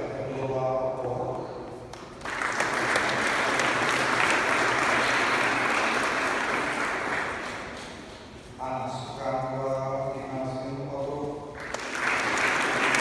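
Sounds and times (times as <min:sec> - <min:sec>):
audience applauding: 0:02.2 - 0:08.0, 0:11.6 - 0:13.0.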